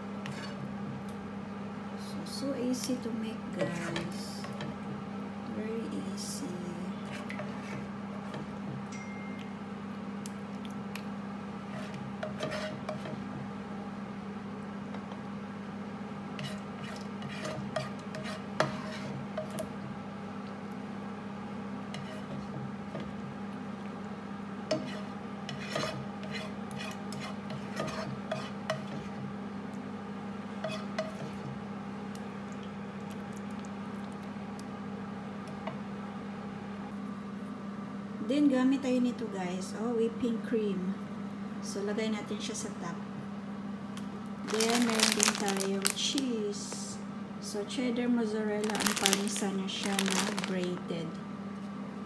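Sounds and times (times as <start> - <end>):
steady low hum: 0.0 - 52.0
utensil scraping a frying pan: 0.2 - 0.6, 11.7 - 13.2, 16.4 - 19.2, 21.9 - 22.5, 24.7 - 29.2, 30.6 - 31.4.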